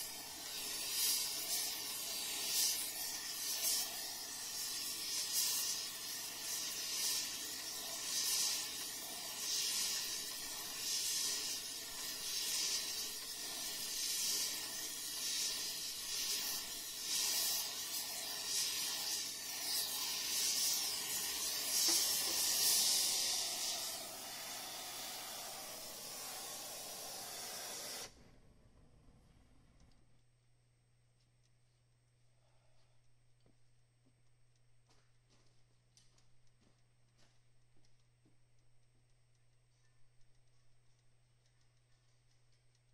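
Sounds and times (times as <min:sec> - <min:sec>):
torch flame hissing: 0:00.0 - 0:28.2.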